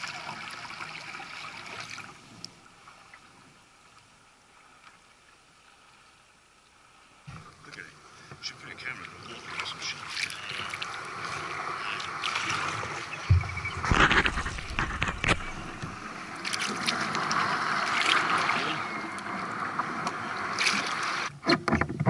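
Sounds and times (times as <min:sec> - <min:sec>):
water trickling along kayak hull: 0:00.0 - 0:22.0
paddle splashes: 0:06.7 - 0:21.3
splashing and knocking: 0:12.2 - 0:18.7.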